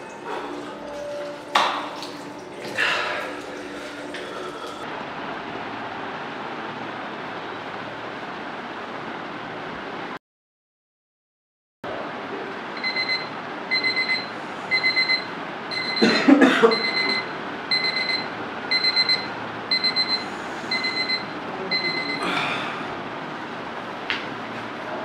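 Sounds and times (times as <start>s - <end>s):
electronic alarm beeping: 12.8s - 16.1s, 16.7s - 22.2s.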